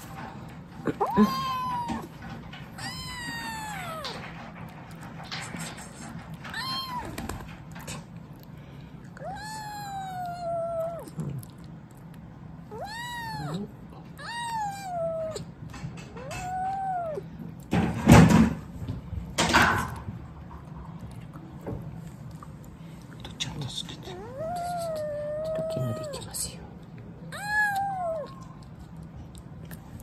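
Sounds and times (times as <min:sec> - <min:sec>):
kitten meowing: 0:01.0 - 0:02.2, 0:02.8 - 0:04.3, 0:06.5 - 0:07.4, 0:09.2 - 0:11.5, 0:12.7 - 0:15.6, 0:16.2 - 0:17.3, 0:24.2 - 0:26.4, 0:27.3 - 0:28.5.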